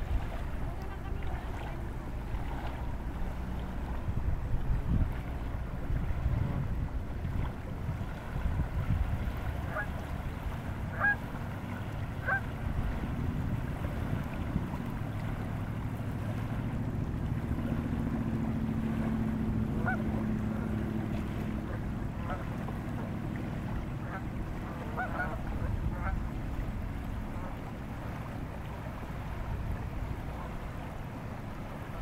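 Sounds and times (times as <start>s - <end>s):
lapping water: 0.0s - 32.0s
wind rumble on microphone: 0.0s - 32.0s
geese honking: 10.9s - 11.2s, 12.2s - 12.4s, 19.8s - 20.0s, 24.8s - 26.2s.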